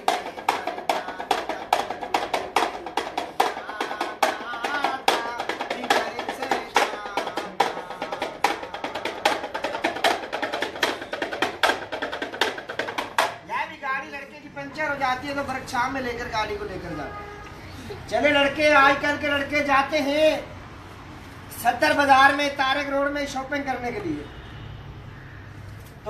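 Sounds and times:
rattle drum clacking: 0.0 - 13.5.

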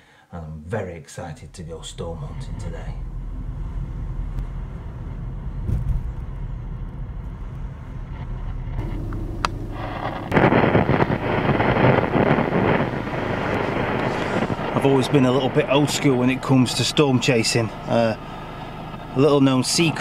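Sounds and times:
car driving rumble from inside: 1.6 - 16.5
car radio static hiss: 7.5 - 20.0.

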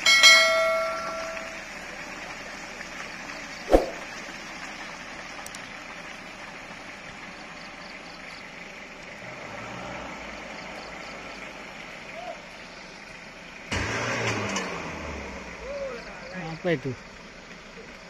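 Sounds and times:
pickup engine running: 0.0 - 18.0
sharp knock: 3.7 - 4.0.

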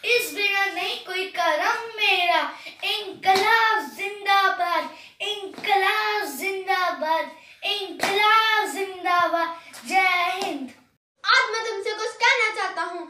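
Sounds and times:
child singing: 0.0 - 10.7
child breathing: 2.5 - 2.8, 4.8 - 5.2, 7.3 - 7.6, 9.5 - 9.8.

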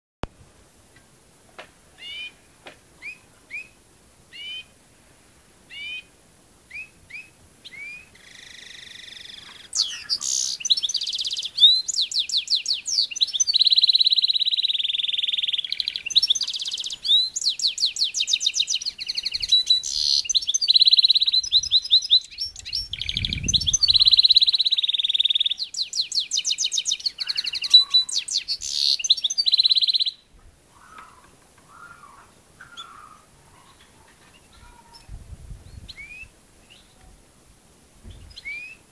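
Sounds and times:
finches chirping and trilling: 8.1 - 30.2.

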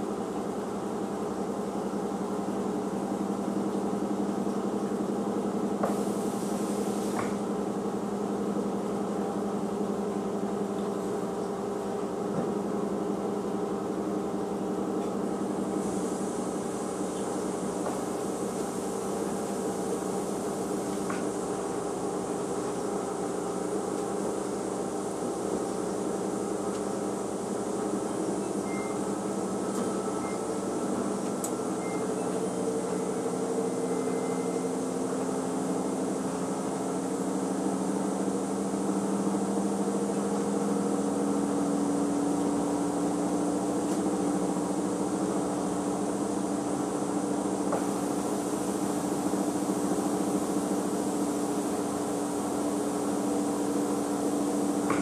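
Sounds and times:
washing machine motor humming: 0.0 - 55.0.

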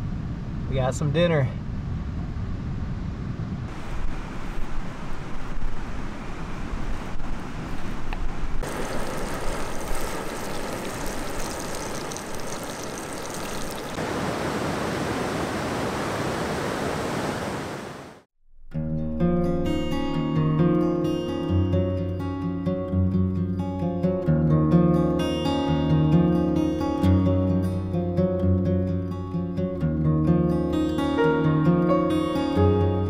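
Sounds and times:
river water rushing over rapids: 8.6 - 18.2.

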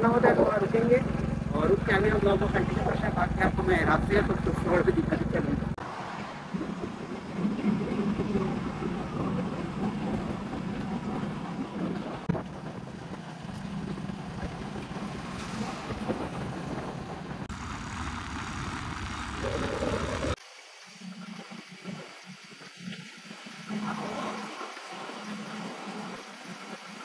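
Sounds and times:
motorcycle running: 0.0 - 20.4
wind buffeting microphone: 0.3 - 17.5.

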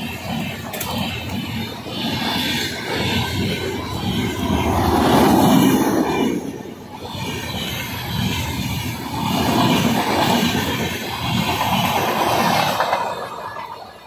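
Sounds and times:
train rushing past: 0.0 - 14.0
wheels clattering over rail joints: 0.0 - 14.0.

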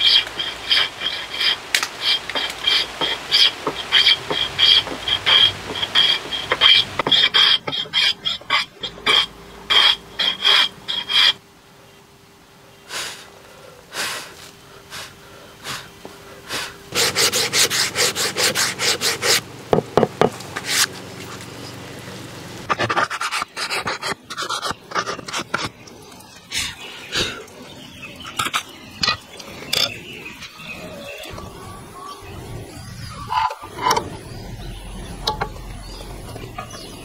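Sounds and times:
hand plane scraping wood: 0.0 - 11.4, 16.9 - 19.4, 20.6 - 21.0, 22.7 - 25.8.

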